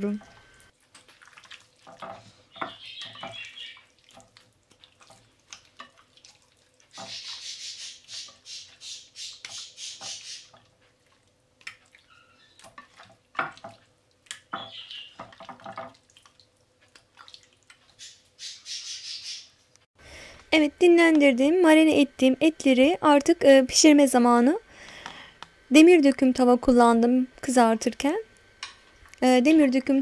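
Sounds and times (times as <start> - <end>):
hands squelching meat in marinade: 0.8 - 18.2.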